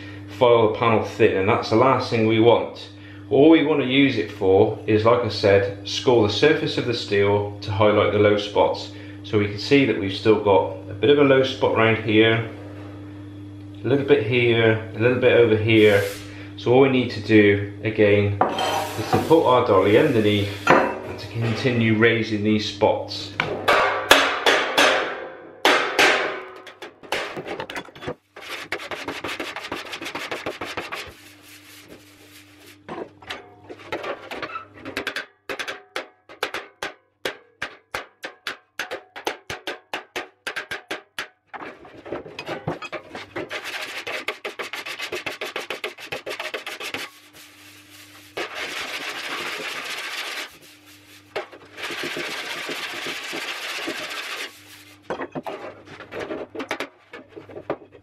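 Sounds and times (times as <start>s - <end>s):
file rasping across steel: 28.4s - 32.9s, 43.0s - 54.9s
file tapping on steel: 34.9s - 41.3s.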